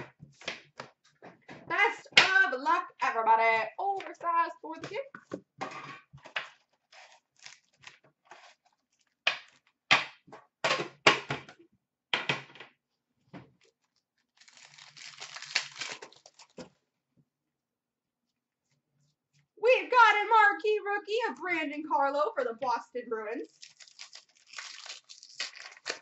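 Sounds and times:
foil card packs crinkling: 6.5s - 9.7s, 13.6s - 16.7s, 23.5s - 26.0s
foil pack ripping open: 6.6s - 9.6s, 13.8s - 16.6s, 23.5s - 26.0s.

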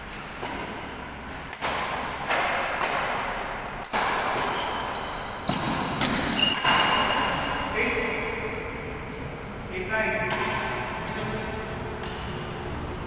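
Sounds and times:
racket hitting shuttlecock: 0.2s - 7.6s, 10.2s - 11.0s, 12.0s - 12.5s
sneakers squeaking on court: 4.3s - 7.7s.

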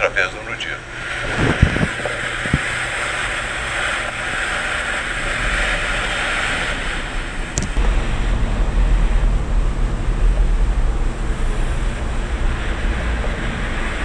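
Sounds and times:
low thumps: 0.8s - 3.1s, 7.5s - 14.0s.

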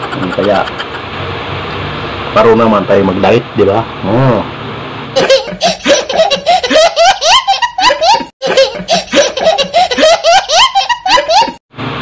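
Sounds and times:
young child laughing: 0.0s - 1.1s, 5.2s - 11.6s.

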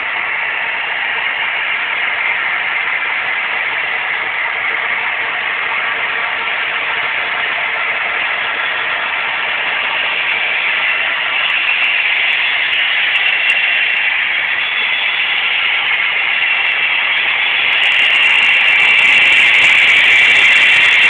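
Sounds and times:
model train whirring on track: 0.0s - 21.0s.

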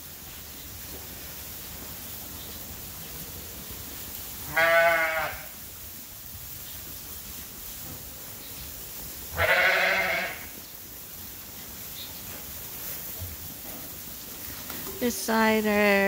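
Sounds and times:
steady low hiss: 0.0s - 16.0s
sheep bleating: 4.4s - 5.5s, 9.4s - 10.5s.

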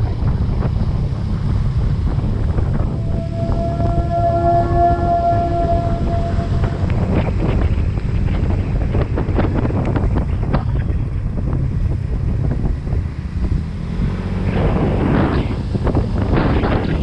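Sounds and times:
scooter engine rumble: 0.0s - 13.6s
wind buffeting microphone: 0.0s - 17.0s.

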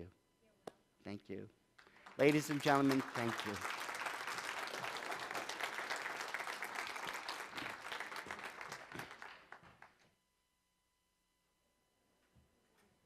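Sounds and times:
audience applauding: 1.9s - 9.9s.

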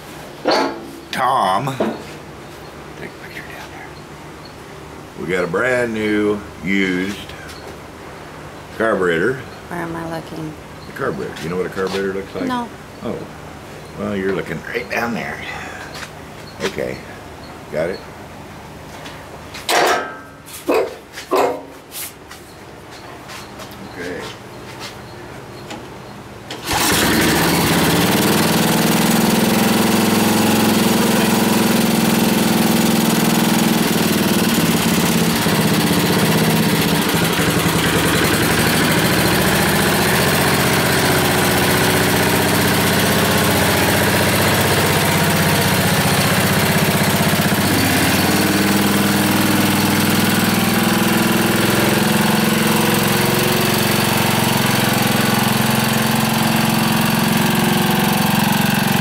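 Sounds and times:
tractor engine starting and running: 26.5s - 59.0s.

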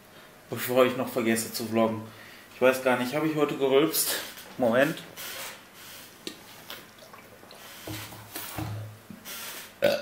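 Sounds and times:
man gulping and swallowing: 6.2s - 9.2s, 9.8s - 10.0s
loud burp: 9.8s - 10.0s.

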